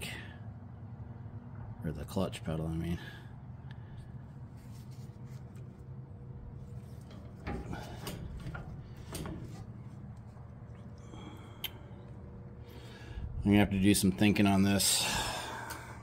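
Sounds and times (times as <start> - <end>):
steady low hum: 0.0 - 16.0
metal levers clunking and scraping: 6.5 - 10.3.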